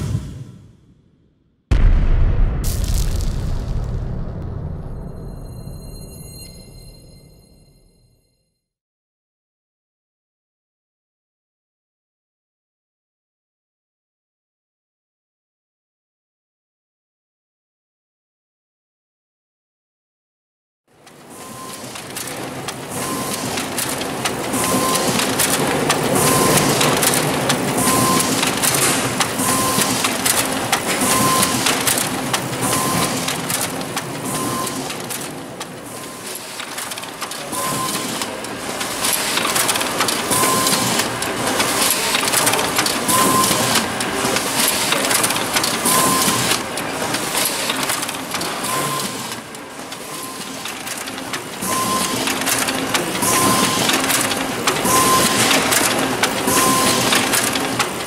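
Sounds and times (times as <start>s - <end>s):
short high tone: 4.9s - 8.3s
laser printer printing: 21.0s - 58.0s.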